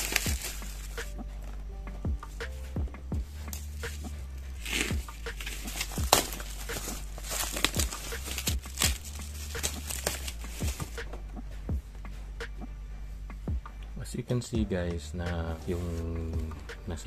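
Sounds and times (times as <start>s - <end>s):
bubble wrap crackling: 0.0s - 1.6s, 3.2s - 11.2s.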